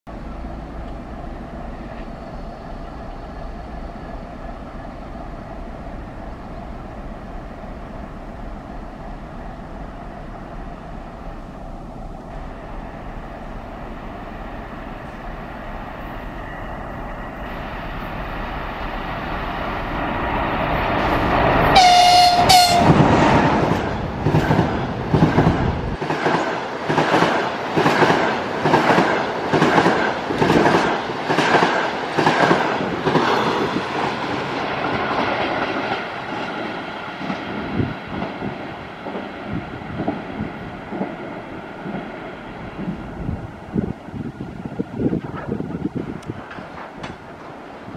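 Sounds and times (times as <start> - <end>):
electric locomotive hum and rumble: 0.1 - 47.9
train horn blast: 21.7 - 23.0
wheels clattering over rail joints: 45.1 - 47.6.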